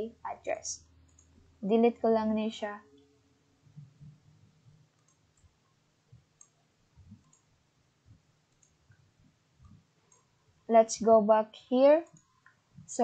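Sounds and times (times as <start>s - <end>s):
faint computer mouse clicks: 6.4s - 7.5s, 8.5s - 9.0s.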